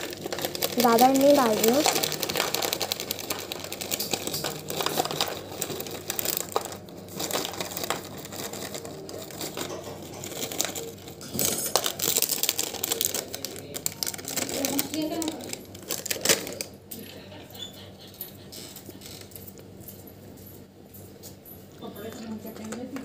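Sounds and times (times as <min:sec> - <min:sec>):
snack pieces rattling into lunchbox: 0:00.0 - 0:16.7
plastic snack packet crinkling: 0:00.0 - 0:17.1.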